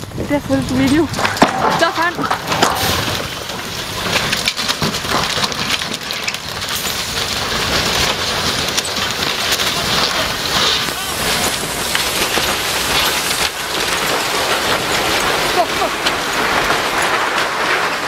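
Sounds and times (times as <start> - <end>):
truck tumbling through snow and brush: 0.5 - 18.0.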